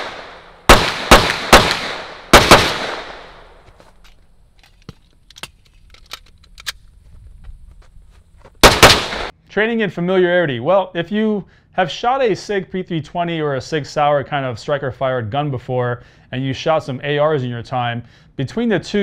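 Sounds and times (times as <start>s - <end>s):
gunshots: 0.0s - 3.6s, 8.6s - 9.3s.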